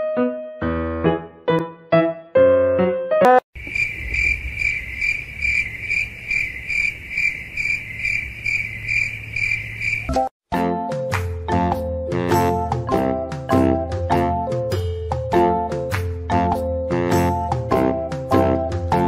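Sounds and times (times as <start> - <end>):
cricket chirping: 3.6 - 10.2.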